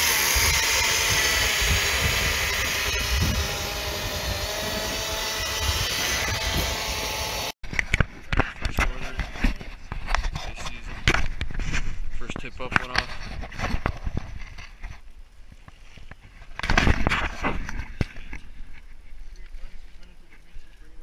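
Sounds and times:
reciprocating saw cutting ice: 0.0s - 7.6s.

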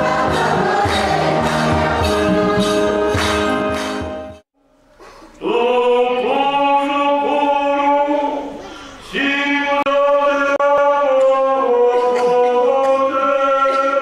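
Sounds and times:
unaccompanied voices chanting: 0.0s - 2.8s
choir singing with percussion: 0.0s - 4.3s.

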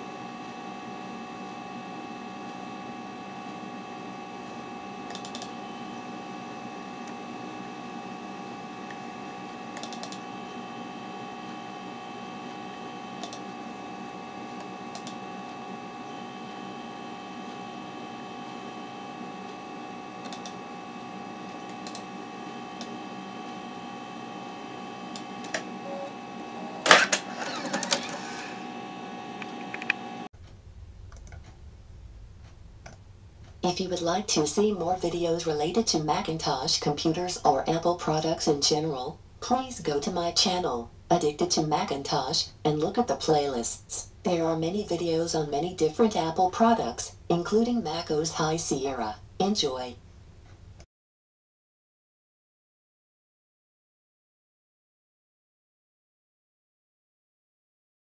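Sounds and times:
computer hum with held tones: 0.0s - 30.3s.

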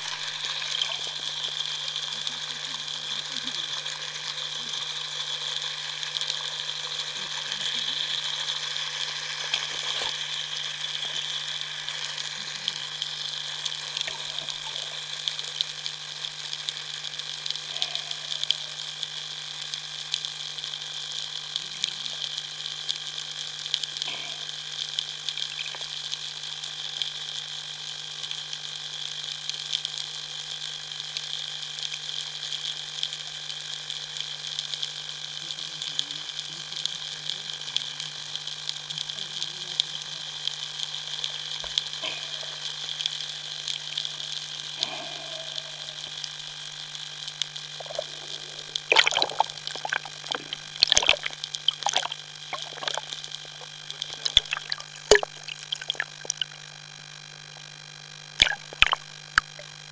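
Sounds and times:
low steady hum: 0.0s - 18.8s, 41.2s - 56.8s, 57.4s - 59.9s
underwater clicking and crackling: 0.0s - 30.0s, 45.5s - 57.7s, 58.4s - 59.9s
underwater hiss: 42.0s - 46.5s, 47.8s - 56.6s.

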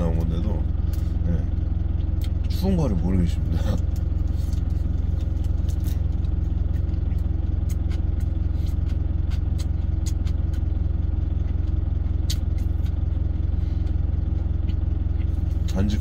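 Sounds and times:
truck engine idling: 0.0s - 16.0s
chewing clicks: 5.4s - 10.7s, 11.4s - 13.2s.

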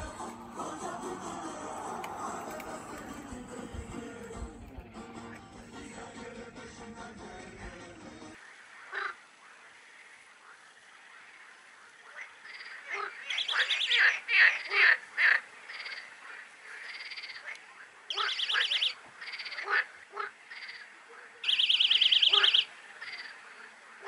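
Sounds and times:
frog croaks: 8.4s - 24.0s
frogs calling: 8.4s - 24.0s.

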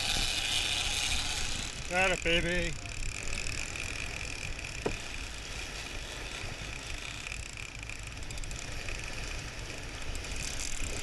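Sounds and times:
boat rumbling through the sea: 0.0s - 11.0s
fishing reel whirring: 0.0s - 11.0s.

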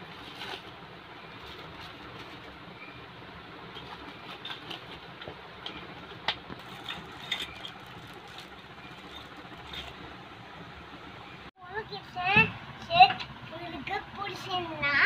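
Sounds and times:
steady background noise: 0.0s - 15.0s
plastic wrapping crinkling: 6.6s - 10.1s.

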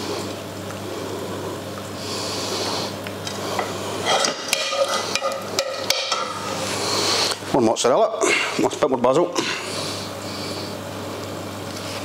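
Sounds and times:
steady low hum: 0.0s - 12.0s
spoon scraping in frying pan: 3.6s - 6.7s.

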